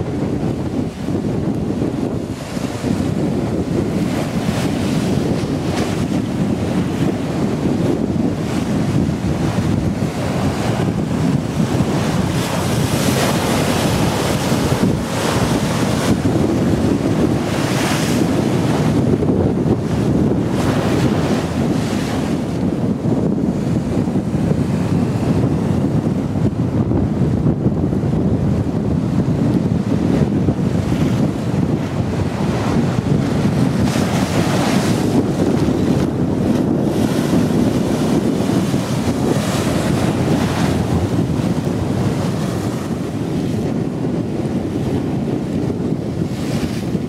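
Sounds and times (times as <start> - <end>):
wind buffeting microphone: 0.0 - 47.0
river water slapping: 0.8 - 22.7, 31.2 - 43.8.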